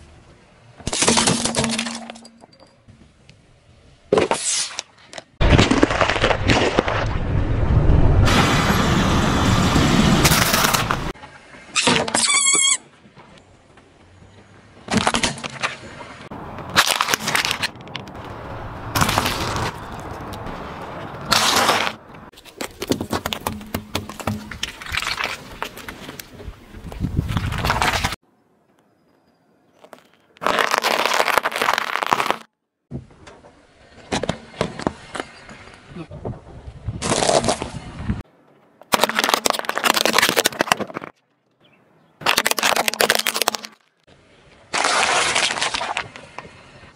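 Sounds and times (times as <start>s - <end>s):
candies crunching under tyre: 5.4s - 7.2s, 16.7s - 20.5s, 29.8s - 32.5s, 37.0s - 37.7s, 38.8s - 41.2s, 42.2s - 44.1s, 44.7s - 46.2s
plastic cartridge cracking under tyre: 42.2s - 43.9s.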